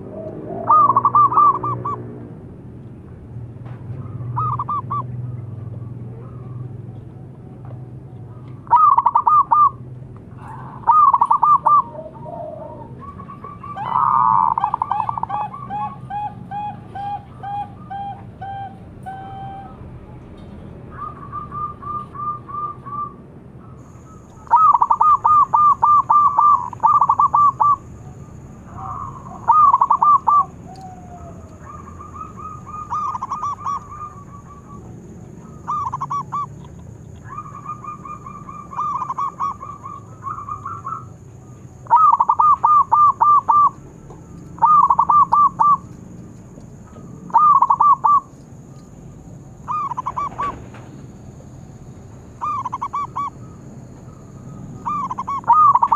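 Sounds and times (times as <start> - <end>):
doves cooing: 0.0 - 2.6, 3.8 - 20.0, 20.8 - 55.9.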